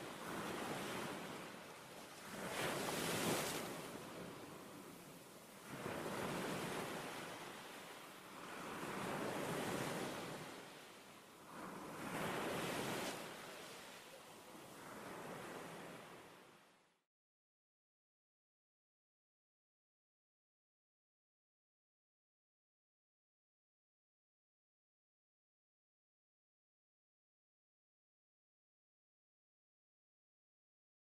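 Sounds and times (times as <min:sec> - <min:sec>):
sea waves washing in: 0:00.0 - 0:16.8.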